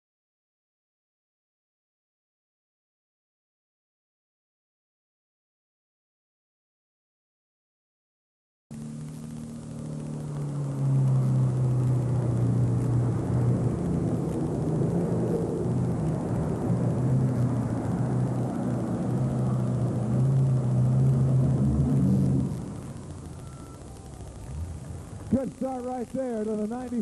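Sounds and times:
tractor engine at full power: 8.7 - 27.0.

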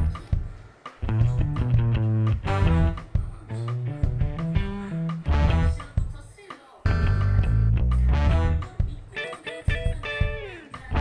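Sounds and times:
bass line: 0.0 - 0.3, 1.0 - 6.0, 6.9 - 8.8
plucked guitar: 3.5 - 5.6, 6.9 - 11.0.

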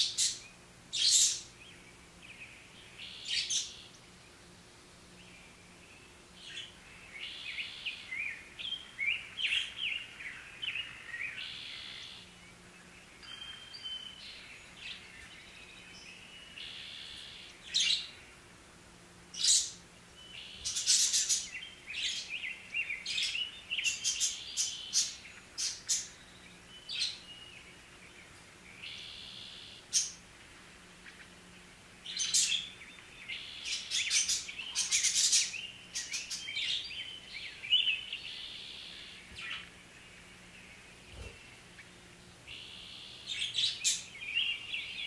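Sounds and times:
shrill bird calls: 0.0 - 1.5, 2.4 - 4.0, 6.4 - 12.3, 12.9 - 18.2, 19.3 - 30.2, 32.0 - 40.2, 42.5 - 45.0
budgerigars chirping and warbling: 0.0 - 1.8, 3.0 - 3.9, 19.3 - 26.2, 32.1 - 39.8, 42.5 - 45.0.

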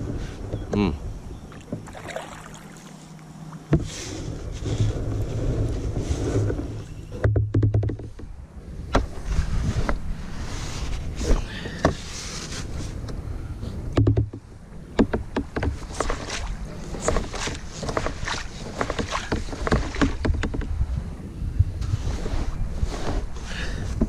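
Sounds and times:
wind rumble on microphone: 0.0 - 2.0, 3.6 - 24.0
paddle knocks: 1.5 - 2.6, 3.6 - 4.0, 6.4 - 9.1, 13.9 - 20.8
paddle strokes splashing: 1.5 - 7.0, 13.6 - 20.8.

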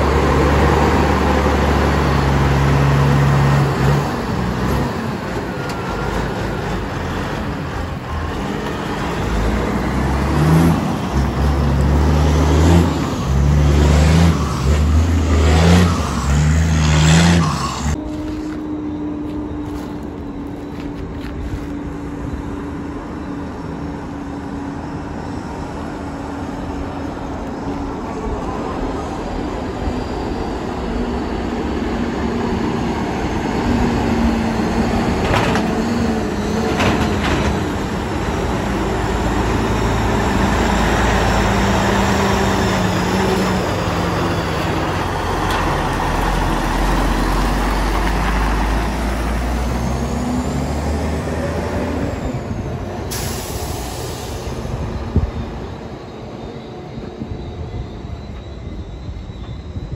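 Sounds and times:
air brake hiss: 53.0 - 54.7.

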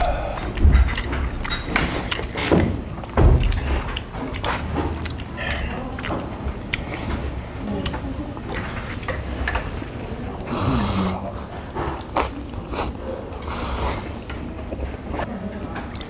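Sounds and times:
chewing: 0.0 - 9.2, 10.4 - 16.0
utensils clicking against bowls: 0.3 - 2.5.

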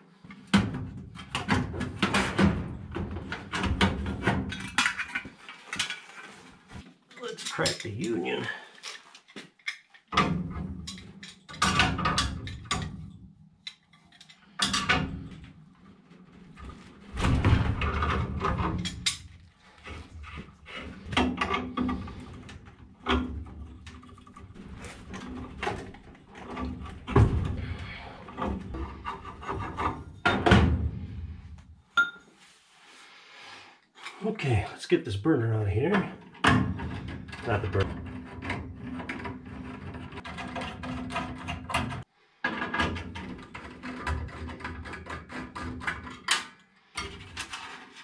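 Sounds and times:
wrenches clanking on metal pipe: 7.1 - 8.6.

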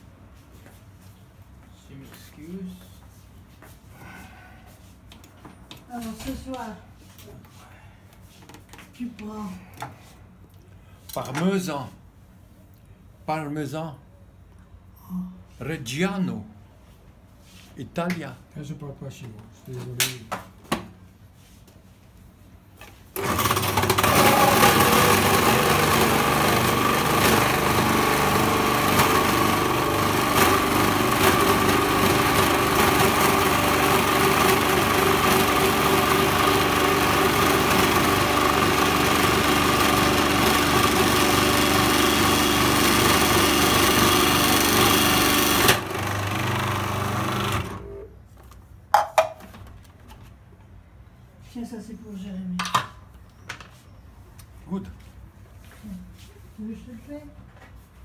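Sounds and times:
appliance motor grinding cheese: 23.2 - 48.0.

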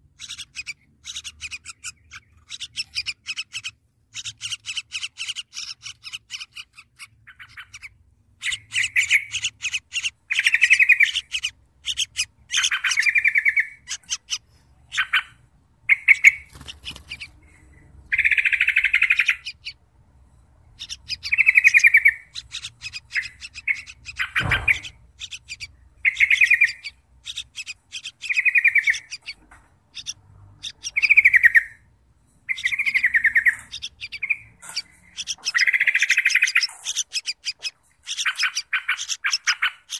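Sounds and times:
nestlings begging calls: 0.0 - 39.9
sharp knock: 24.4 - 24.9.

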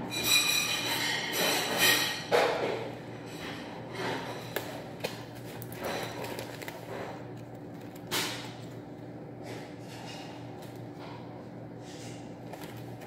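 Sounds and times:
steady low hum: 1.3 - 13.0
paper rustling: 5.0 - 8.8.

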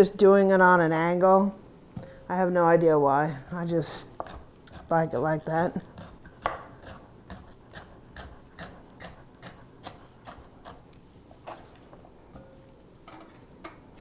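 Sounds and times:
knife chopping on cutting board: 4.2 - 4.9, 5.8 - 10.8.

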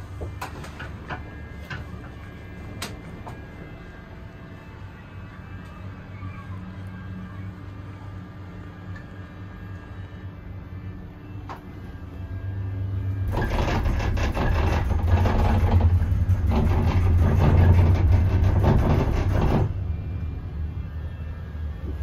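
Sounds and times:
deep hum: 0.0 - 22.0
cable car cabin rumbling and clattering: 13.2 - 19.8.

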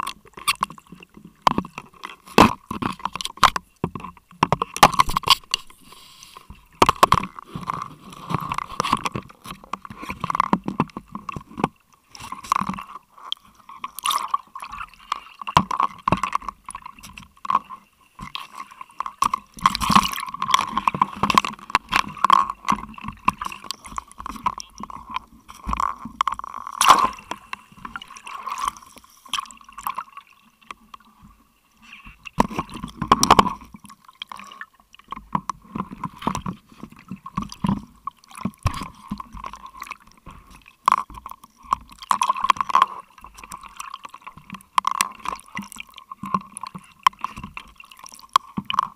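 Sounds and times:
water gurgling and sloshing: 0.0 - 48.9
water splashing: 0.0 - 48.9
rush of bubbles: 26.7 - 28.8.

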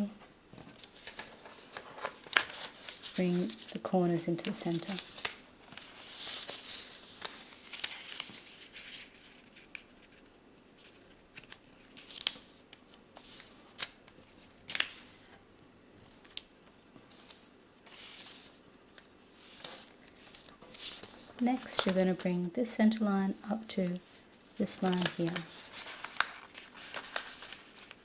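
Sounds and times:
paper rustling: 0.5 - 15.4, 17.1 - 22.4, 23.4 - 28.0
sharp paper crackles: 0.6 - 3.8, 4.4 - 9.9, 10.8 - 15.2, 19.3 - 22.2, 23.9 - 28.0.

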